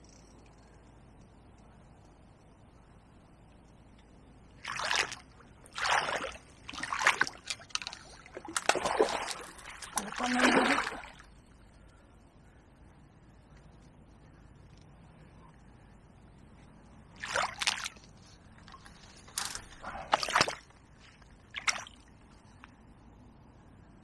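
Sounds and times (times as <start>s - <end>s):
fish splashing in water: 4.6s - 11.2s, 17.2s - 18.0s, 20.0s - 20.7s.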